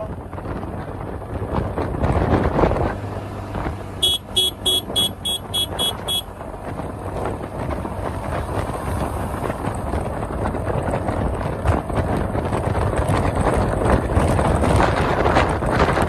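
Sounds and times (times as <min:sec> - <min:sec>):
wind rushing over microphone: 0:00.0 - 0:16.0
high beeps: 0:04.0 - 0:06.2.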